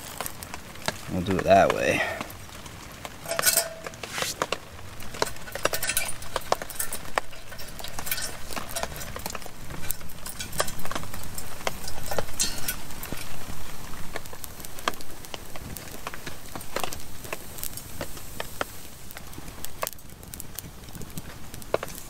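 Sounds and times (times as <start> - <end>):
metal gear clinking: 3.3 - 4.4.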